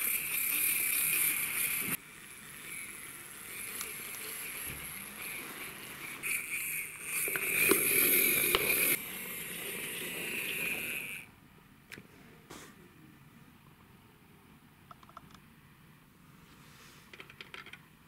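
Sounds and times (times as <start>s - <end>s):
plastic toy truck wheels rolling: 0.0s - 2.0s, 2.6s - 11.3s.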